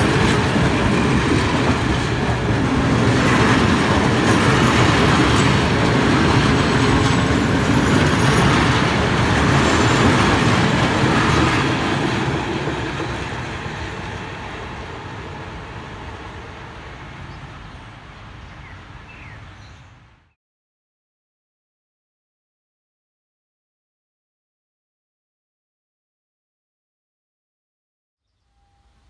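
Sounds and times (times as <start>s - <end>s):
train wheels clattering on rails: 0.0s - 15.8s.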